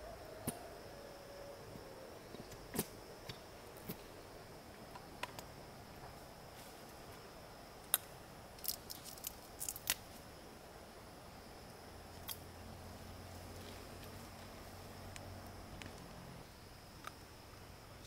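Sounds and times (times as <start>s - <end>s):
faint high-pitched hum: 0.0s - 18.0s.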